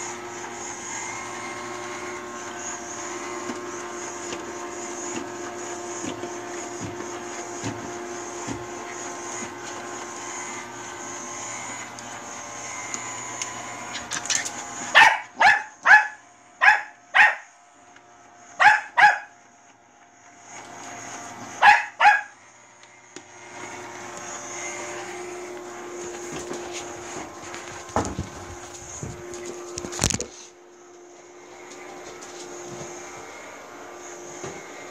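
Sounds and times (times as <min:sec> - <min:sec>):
robot vacuum cleaner hum: 0:00.0 - 0:34.9
small dog barking sharply: 0:15.0 - 0:17.5, 0:18.6 - 0:19.3, 0:21.6 - 0:22.3.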